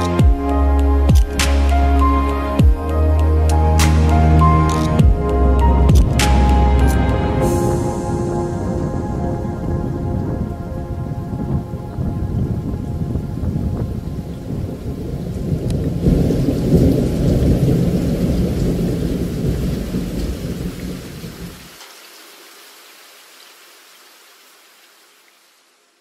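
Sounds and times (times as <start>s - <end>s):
rolling thunder rumble: 4.2s - 21.7s
rain hiss: 11.4s - 26.0s.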